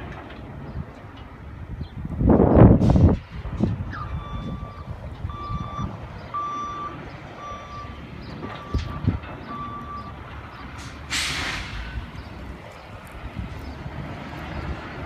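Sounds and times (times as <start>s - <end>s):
diesel engine running: 0.0s - 15.0s
truck reversing alarm beeping: 3.8s - 12.4s
air brakes hissing: 10.8s - 12.1s.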